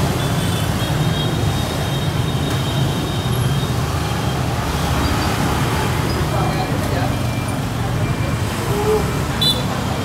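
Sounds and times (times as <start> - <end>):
motorbike engines passing: 0.0 - 10.0.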